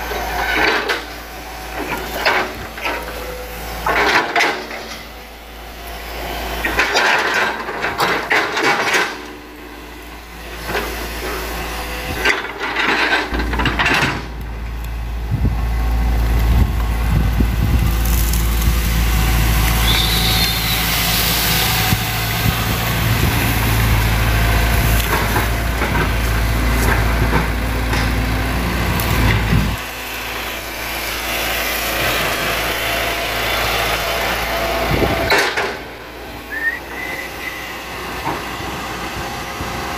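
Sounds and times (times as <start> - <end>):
excavator diesel engine working: 0.0 - 39.9
roots cracking and snapping: 15.8 - 20.6.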